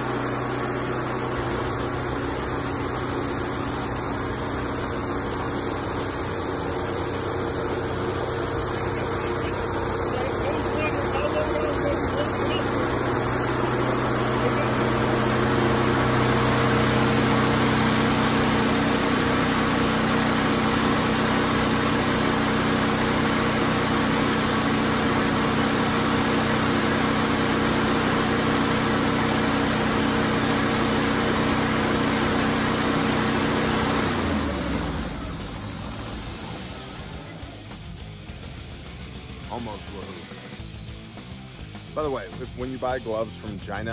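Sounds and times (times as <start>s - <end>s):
sawmill engine running: 0.0s - 41.0s.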